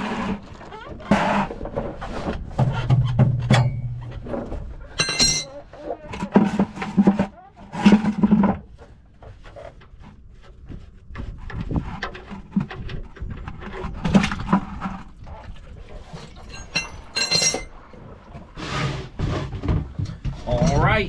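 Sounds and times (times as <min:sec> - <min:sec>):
plastic scraping: 0:00.0 - 0:05.0, 0:05.6 - 0:16.3, 0:18.0 - 0:21.0
plastic bucket squeak: 0:00.0 - 0:09.8.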